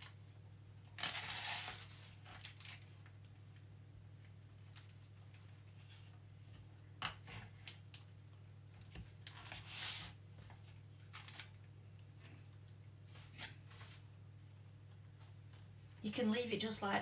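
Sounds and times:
low steady hum: 0.0s - 17.0s
knife scraping foil tray: 1.0s - 2.2s, 9.3s - 10.2s.

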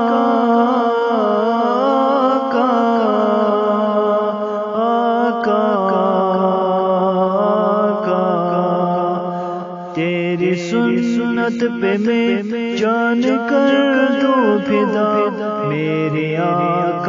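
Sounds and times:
man singing unaccompanied: 0.0s - 17.0s.

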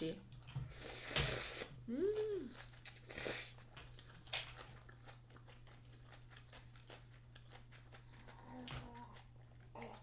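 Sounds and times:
quiet chewing: 0.2s - 10.0s
person slurping noodles: 0.7s - 1.8s, 2.9s - 3.6s.

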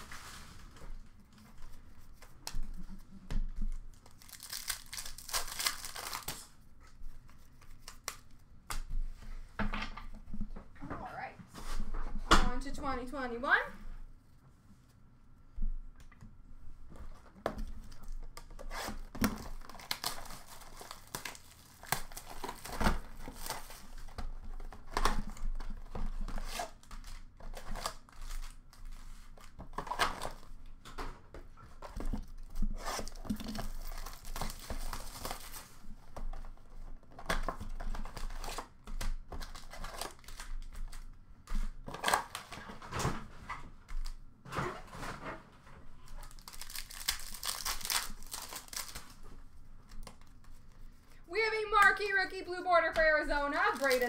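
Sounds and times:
foil wrappers crinkling: 3.7s - 8.5s, 17.7s - 30.5s, 32.2s - 41.1s, 46.0s - 54.0s
wrapper tearing: 4.0s - 6.6s, 17.9s - 24.1s, 32.3s - 35.8s, 39.4s - 41.0s, 46.1s - 49.2s, 53.5s - 54.0s.

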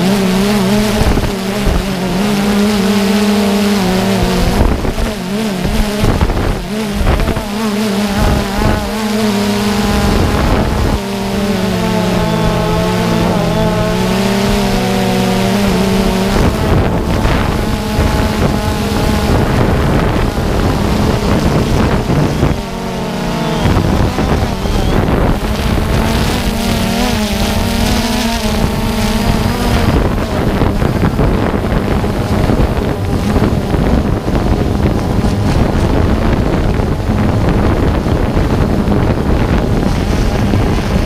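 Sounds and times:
drone propellers humming: 0.0s - 41.0s
wind rushing over microphone: 0.0s - 41.0s.

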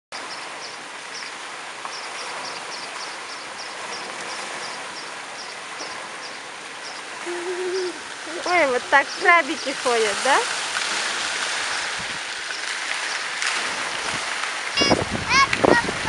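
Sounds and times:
splashing pool water and fountains: 0.1s - 16.0s
small bird chirping: 1.9s - 9.8s.

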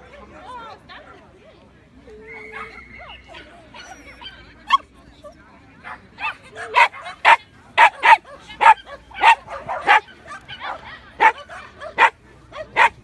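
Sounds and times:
dog barking: 6.2s - 13.0s.

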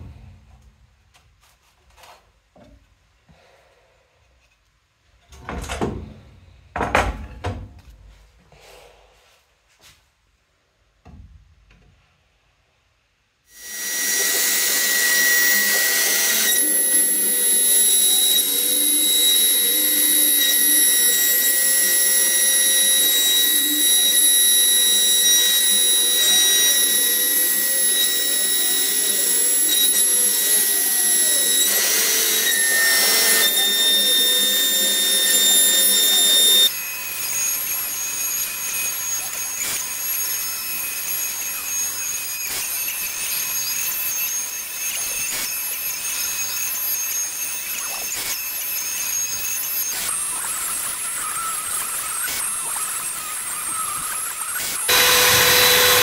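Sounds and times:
cutter routing wood: 13.5s - 56.0s
router high whine: 13.5s - 56.0s
vacuum hose suction: 54.9s - 56.0s.

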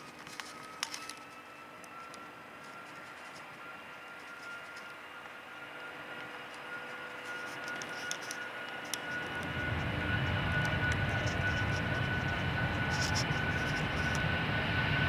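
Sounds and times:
jet engines whining and roaring: 0.0s - 15.0s
low rumble: 9.3s - 15.0s.

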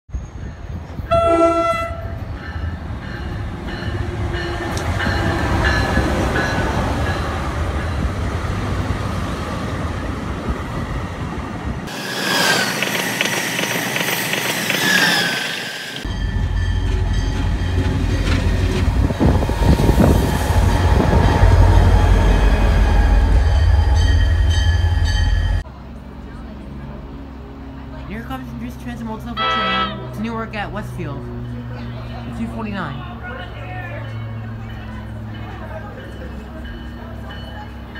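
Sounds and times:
high-speed train passing: 0.2s - 37.9s
train horn: 1.1s - 2.2s, 29.4s - 30.2s.

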